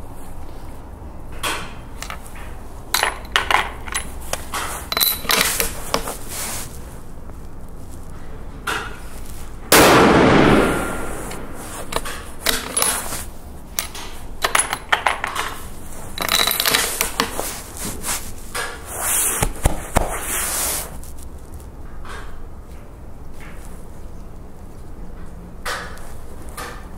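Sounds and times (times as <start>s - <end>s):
rifle shot: 9.7s - 11.6s.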